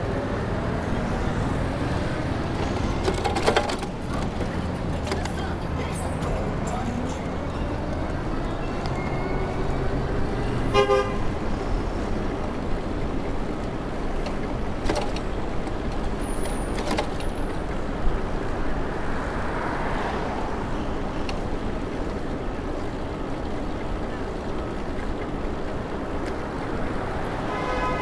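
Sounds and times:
city street traffic: 0.0s - 28.0s
car horn toot: 10.7s - 11.3s, 27.5s - 28.0s.

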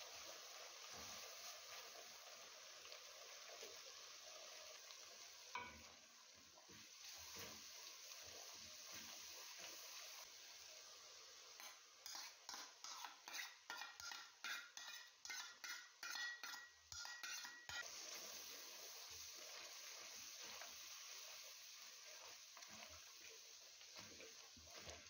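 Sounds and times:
faint sizzle of frying: 0.0s - 25.0s
spoon scraping a metal strainer: 11.6s - 17.8s.

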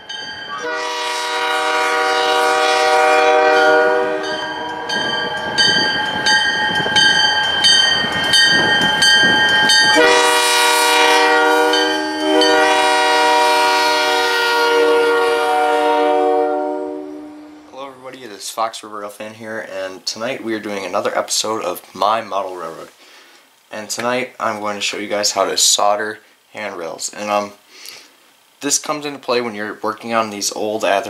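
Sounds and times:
bell ringing: 0.0s - 0.7s, 3.6s - 10.1s, 11.7s - 12.6s
passing train rumble: 0.0s - 18.4s
locomotive air horn blasts: 0.5s - 5.0s, 9.9s - 17.7s.

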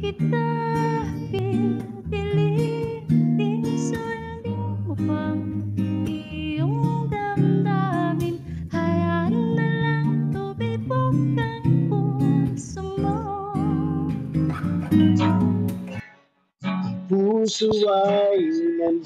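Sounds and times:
woman singing slow melody: 0.0s - 14.2s
strummed acoustic guitar: 0.0s - 17.1s.

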